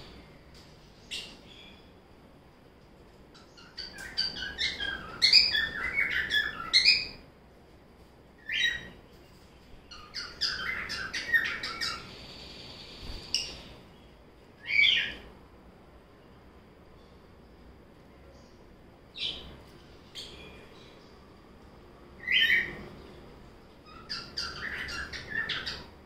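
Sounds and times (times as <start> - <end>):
lovebirds chirping: 0.0 - 2.0, 3.2 - 7.2, 8.4 - 15.3, 16.3 - 21.4, 22.2 - 26.0.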